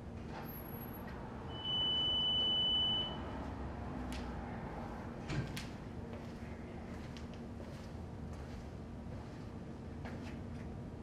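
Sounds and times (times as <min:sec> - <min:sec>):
high-pitched electronic beep: 0:01.5 - 0:03.3.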